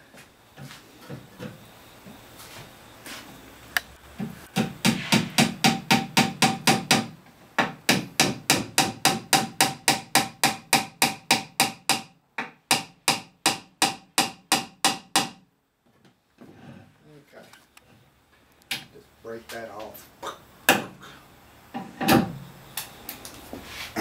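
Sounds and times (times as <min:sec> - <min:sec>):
hammer tapping wooden wedge: 0:04.6 - 0:15.4.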